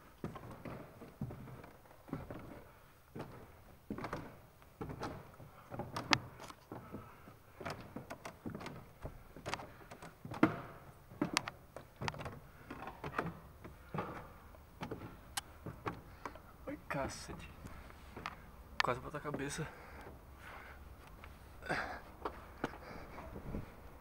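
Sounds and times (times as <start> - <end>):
footsteps on stone stairs: 0.0 - 24.0
handheld camera rustling: 0.4 - 16.5, 17.1 - 18.6.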